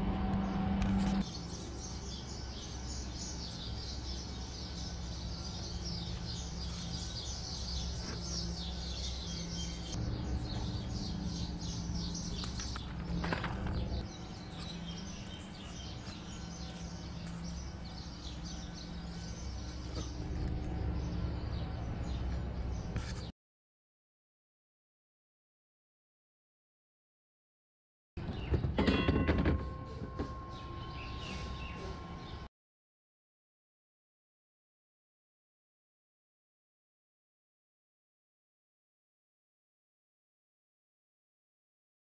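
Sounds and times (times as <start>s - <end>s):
louder low hum: 0.0s - 23.3s
steady low hum: 0.0s - 23.3s, 29.6s - 32.5s
small birds chirping: 0.4s - 23.3s, 30.5s - 32.5s.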